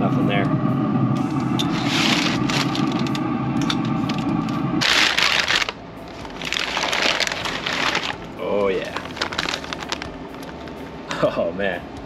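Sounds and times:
steady low hum: 0:00.0 - 0:12.0
stiff paper crinkling: 0:04.8 - 0:10.6.

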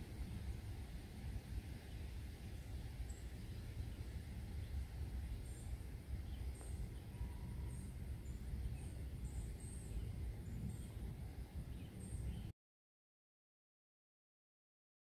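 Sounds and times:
faint high chirps: 0:05.3 - 0:11.1.

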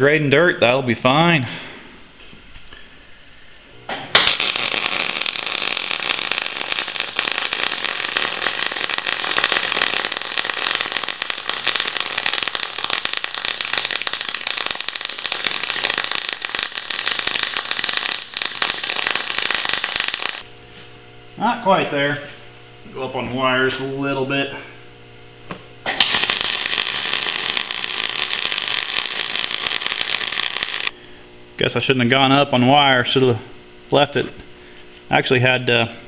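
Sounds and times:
welding arc crackling: 0:03.9 - 0:20.5, 0:25.9 - 0:31.0.

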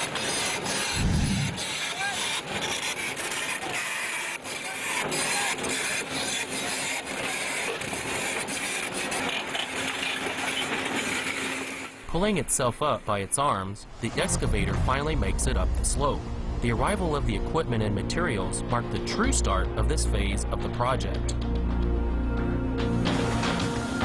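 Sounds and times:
steel tracks grinding over rock: 0:00.0 - 0:12.6.

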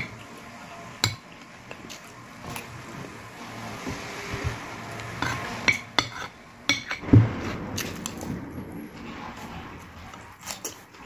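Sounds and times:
chewing: 0:10.0 - 0:11.0.

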